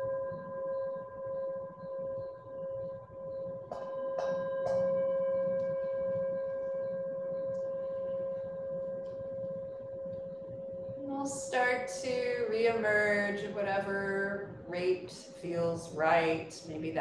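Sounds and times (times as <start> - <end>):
singing bowl ringing: 0.0 - 17.0
singing bowl strikes: 3.6 - 9.3.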